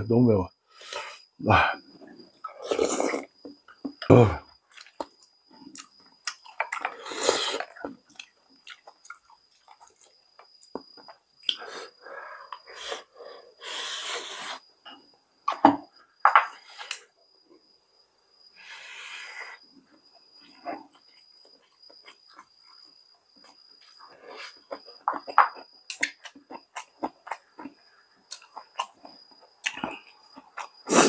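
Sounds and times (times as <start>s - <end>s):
person chewing food: 4.7s - 13.1s, 20.2s - 31.0s.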